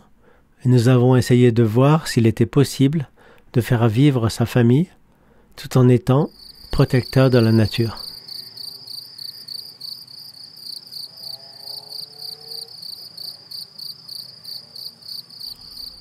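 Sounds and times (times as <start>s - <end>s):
crickets chirping: 6.2s - 16.0s.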